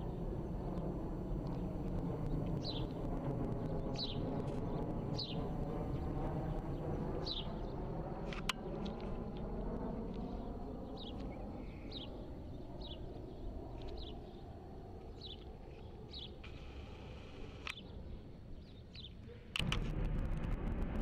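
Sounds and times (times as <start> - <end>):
jet engines rumbling overhead: 0.0 - 21.0
small bird chirping: 2.3 - 3.0, 6.8 - 7.7, 10.8 - 16.6, 18.6 - 19.3.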